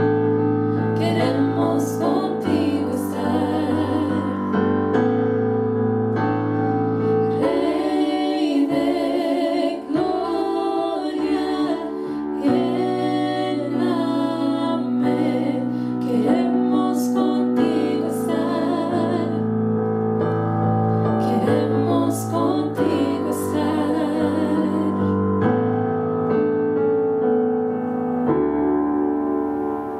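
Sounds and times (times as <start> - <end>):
keyboard chords: 0.0 - 29.9
women singing into microphones: 0.8 - 4.6, 7.3 - 19.4, 21.2 - 25.2.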